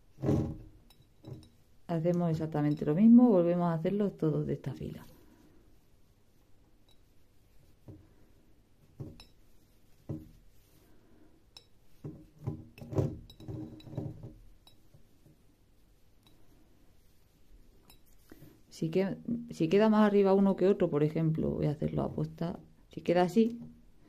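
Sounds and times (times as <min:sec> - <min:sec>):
cord knocking against glass jar: 0:00.2 - 0:01.6, 0:08.9 - 0:09.4, 0:11.6 - 0:14.8.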